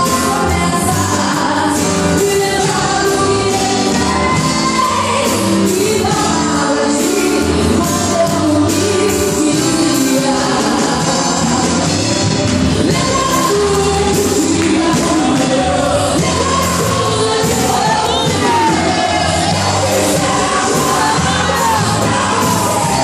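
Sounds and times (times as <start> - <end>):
woman singing into a microphone: 0.0 - 12.2, 12.8 - 23.0
live band playing: 0.0 - 23.0.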